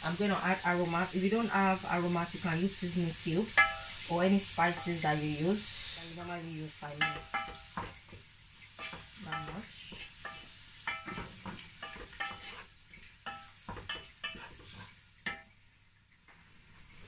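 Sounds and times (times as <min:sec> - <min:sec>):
faint frying sizzle: 0:00.0 - 0:17.0
spoon knocking metal pot: 0:03.6 - 0:04.0, 0:07.0 - 0:08.0, 0:08.8 - 0:12.5, 0:15.3 - 0:15.5.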